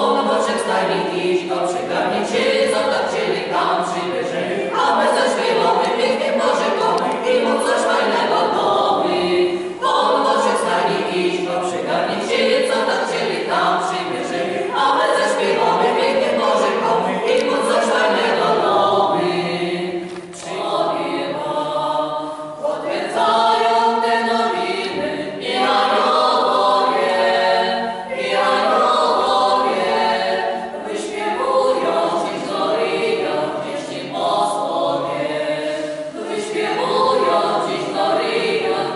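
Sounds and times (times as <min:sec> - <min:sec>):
choir singing a cappella: 0:00.0 - 0:38.9
singers breathing: 0:35.7 - 0:36.2.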